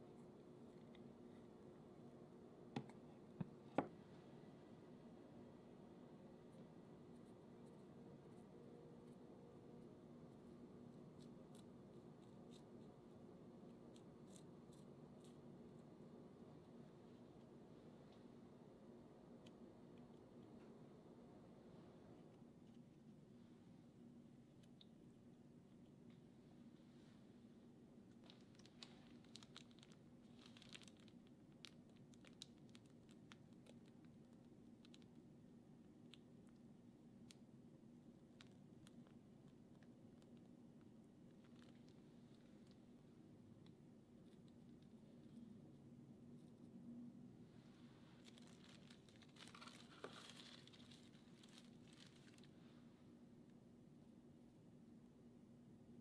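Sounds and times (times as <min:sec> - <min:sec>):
low steady hum: 0:00.0 - 0:56.0
piping bag crinkling and clicking: 0:28.1 - 0:35.3, 0:38.2 - 0:42.9, 0:48.2 - 0:52.5.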